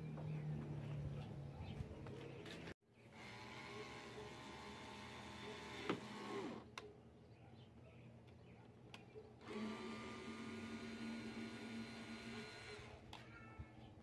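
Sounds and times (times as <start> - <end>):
cordless drill whining: 3.1 - 6.7, 9.4 - 13.0.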